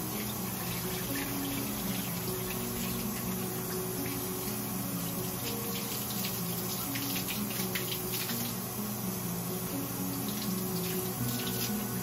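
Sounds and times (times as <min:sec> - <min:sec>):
tap water running and splashing: 0:00.0 - 0:08.8, 0:09.6 - 0:12.0.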